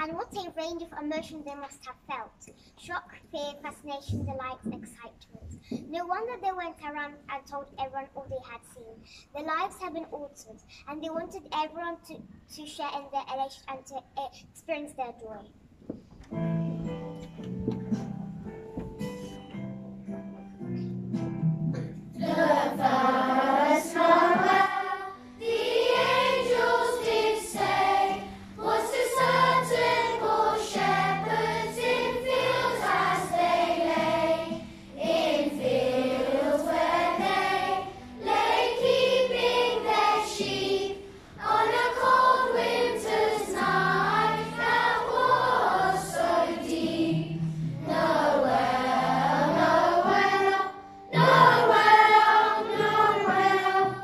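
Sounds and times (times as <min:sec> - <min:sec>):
low instrumental accompaniment: 0:16.2 - 0:54.0
children's choir singing: 0:22.2 - 0:54.0.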